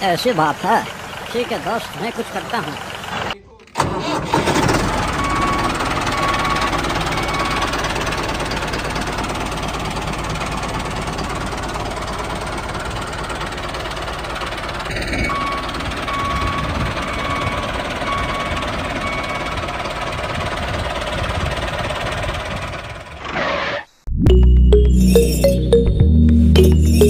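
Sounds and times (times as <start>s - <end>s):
heavy vehicle engine running: 0.0s - 23.3s
short high beeps: 24.3s - 27.0s.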